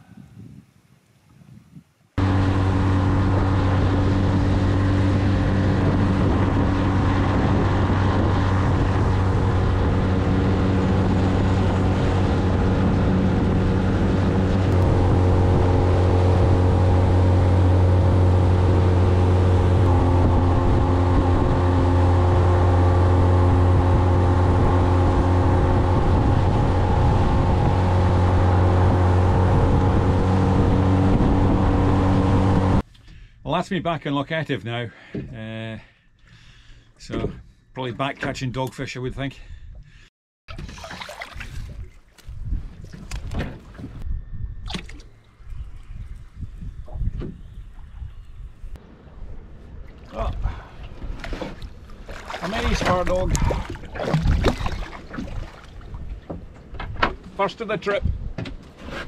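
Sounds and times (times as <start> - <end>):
boat engine droning: 2.2 - 32.8, 43.1 - 57.9.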